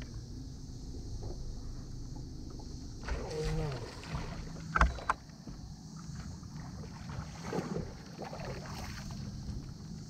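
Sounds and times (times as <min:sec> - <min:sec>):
steady low hum: 0:00.0 - 0:10.0
water: 0:00.0 - 0:10.0
wind: 0:00.0 - 0:10.0
sharp knocks on boat: 0:04.4 - 0:05.7.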